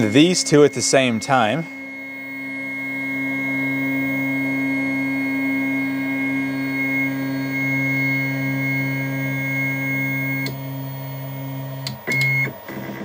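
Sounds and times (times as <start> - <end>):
stepper motors whining: 0.0 - 13.0.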